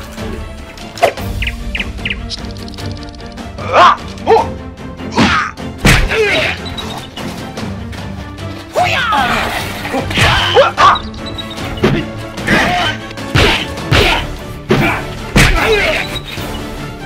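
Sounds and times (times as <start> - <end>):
background music: 0.0 - 17.0
punch and hit sound effects: 13.3 - 15.7.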